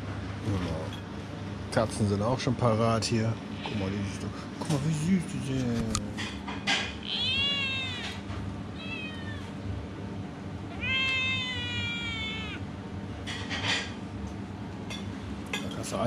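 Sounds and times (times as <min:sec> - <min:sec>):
cat meowing: 0:06.9 - 0:09.6, 0:10.7 - 0:12.7.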